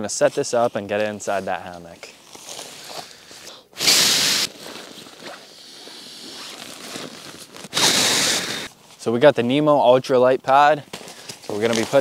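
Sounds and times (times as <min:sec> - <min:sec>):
nylon rustling: 0:00.0 - 0:03.4, 0:04.2 - 0:09.1.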